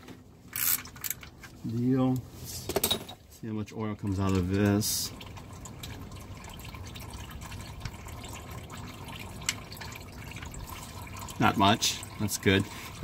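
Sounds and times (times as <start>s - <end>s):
oil dripping into pan: 4.2s - 12.4s.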